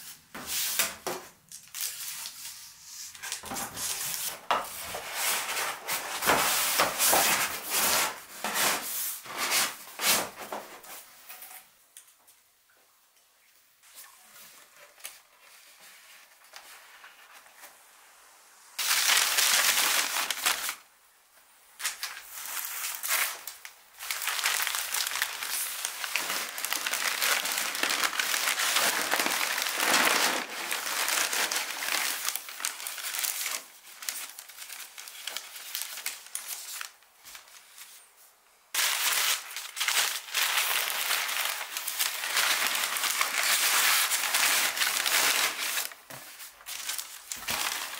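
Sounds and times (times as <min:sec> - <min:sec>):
wrapping material crackling: 0:18.8 - 0:20.8, 0:21.8 - 0:38.0, 0:38.7 - 0:47.9.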